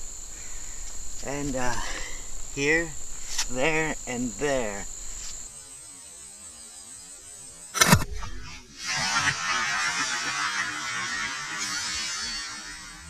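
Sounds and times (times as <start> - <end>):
steady hiss: 0.0 - 5.6, 7.8 - 13.0
revolver shot: 7.8 - 8.6.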